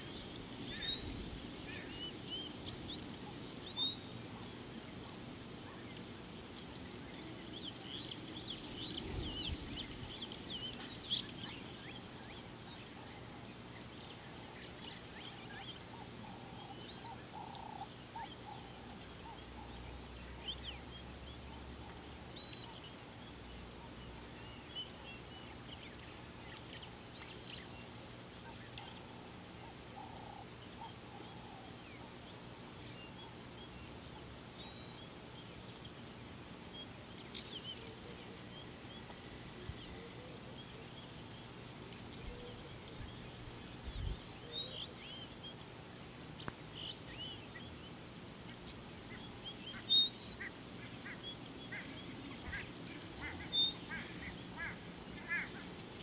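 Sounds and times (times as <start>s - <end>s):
faint steady hum: 0.0s - 56.0s
wild birds chirping and whistling: 0.0s - 56.0s.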